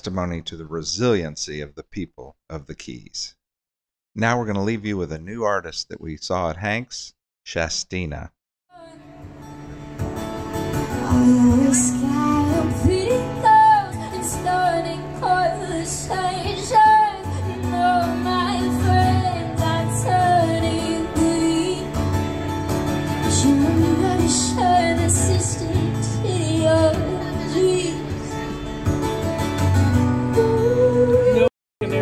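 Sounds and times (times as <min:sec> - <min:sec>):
acoustic guitar: 0:08.8 - 0:32.0
woman singing into microphone: 0:10.9 - 0:22.0, 0:23.2 - 0:28.4, 0:30.3 - 0:31.5.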